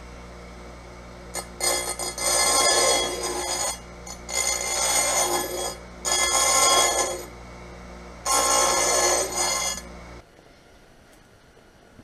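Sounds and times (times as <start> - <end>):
grinder motor humming: 0.0 - 10.2
stone grinding on spinning wheel: 1.3 - 7.3, 8.3 - 9.9.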